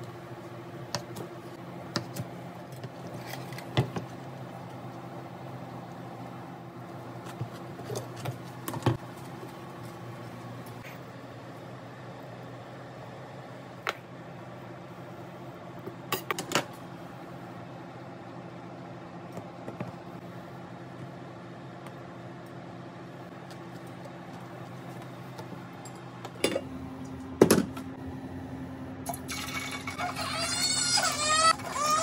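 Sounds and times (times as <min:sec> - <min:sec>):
appliance hum: 0:00.0 - 0:32.0
low kitchen hum: 0:00.0 - 0:32.0
baby crying: 0:29.6 - 0:32.0.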